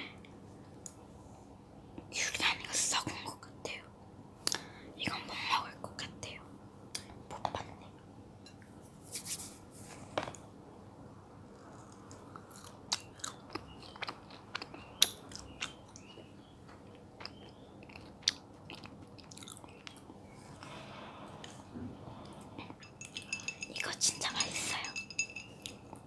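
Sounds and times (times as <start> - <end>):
chewing juicy fruit: 11.6 - 16.2, 16.8 - 20.1.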